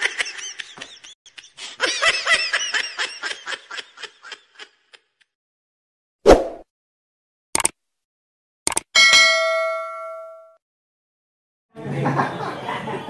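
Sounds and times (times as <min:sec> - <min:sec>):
man laughing hard: 0:00.0 - 0:05.2.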